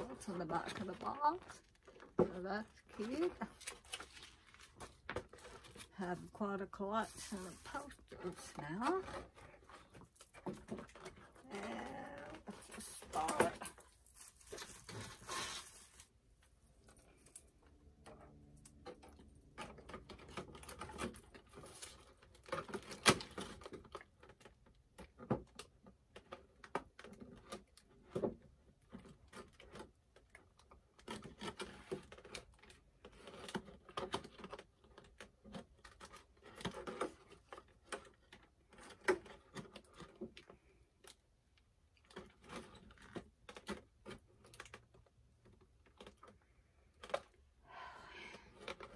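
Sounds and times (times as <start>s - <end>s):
plastic packaging crinkling: 0.0s - 17.6s.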